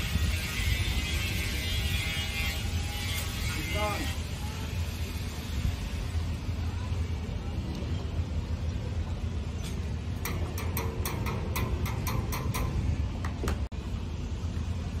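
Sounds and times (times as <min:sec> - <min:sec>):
sharp knocks: 0:10.2 - 0:13.7.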